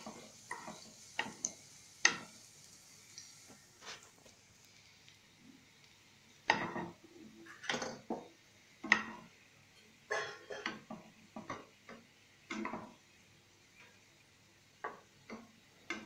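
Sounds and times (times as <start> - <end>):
spatula knocking on a frying pan: 6.5 - 7.0, 8.0 - 9.2, 10.6 - 13.0.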